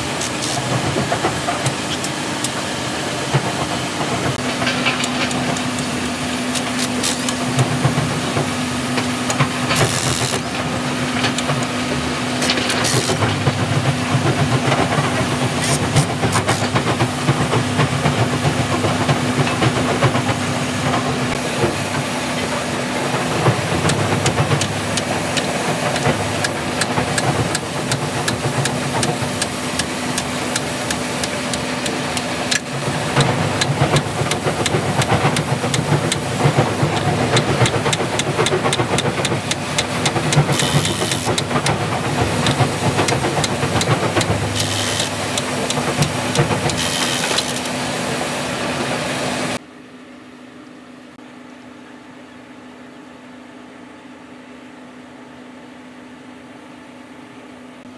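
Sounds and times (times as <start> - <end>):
steady machine hum: 0.0 - 57.9
impact wrench hammering: 24.6 - 32.7.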